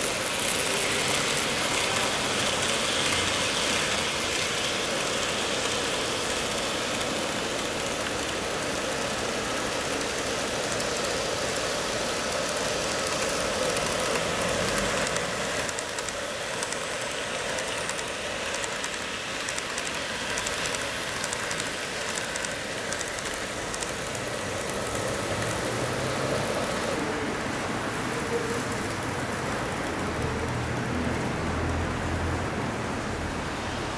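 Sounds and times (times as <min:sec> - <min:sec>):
model train motors whirring: 0:00.0 - 0:33.9
light rapid clicking: 0:12.5 - 0:25.7.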